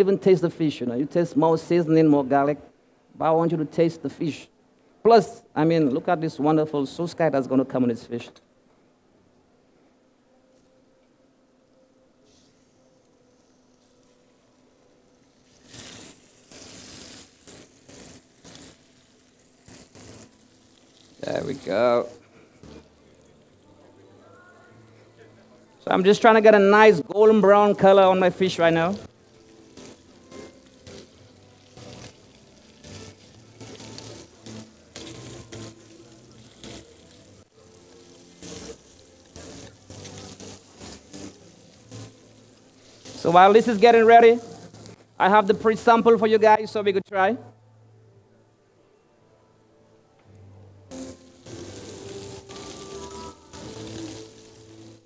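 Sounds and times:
fish sizzling in hot oil: 12.3 - 45.1, 50.9 - 55.0.

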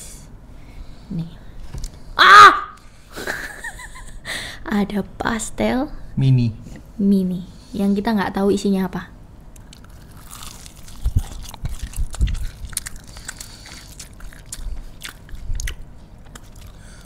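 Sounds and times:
pastry crust crackling: 9.6 - 15.3
soft chewing thumps: 10.9 - 16.8.

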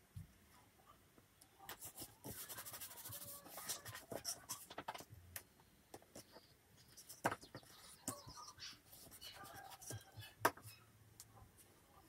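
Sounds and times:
paper rustling and rubbing: 1.7 - 5.0.

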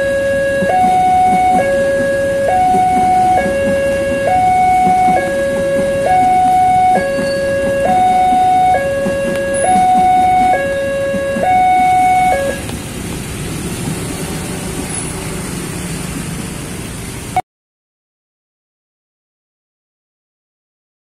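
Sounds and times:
level-crossing warning alarm: 0.0 - 12.7
street noise: 0.0 - 17.4.

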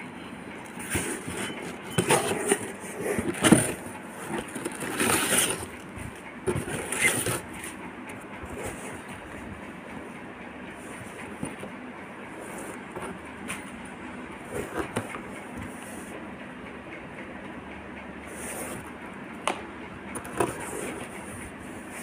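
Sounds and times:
packing paper rustling and crinkling: 0.8 - 5.8.

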